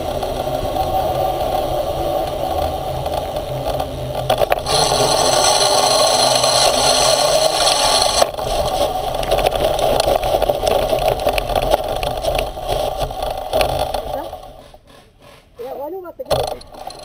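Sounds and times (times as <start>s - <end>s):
small engine running: 0.0s - 17.0s.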